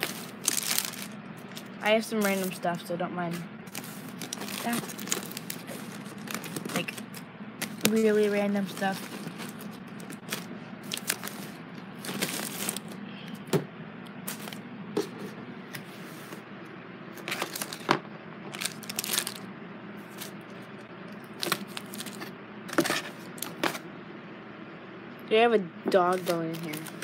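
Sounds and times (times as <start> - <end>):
plastic wrapping crinkling: 0.0 - 2.6, 3.7 - 13.0, 14.2 - 14.6, 17.2 - 17.9, 18.5 - 19.5, 21.2 - 23.6, 26.1 - 27.0
steady low hum: 0.0 - 27.0.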